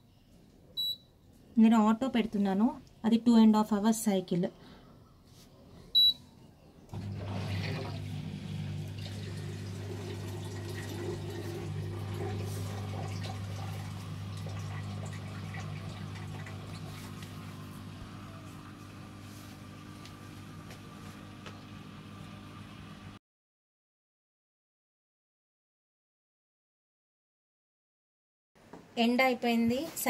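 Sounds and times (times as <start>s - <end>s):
short beep: 6.0s - 6.2s
dishwasher pump hum: 6.9s - 23.2s.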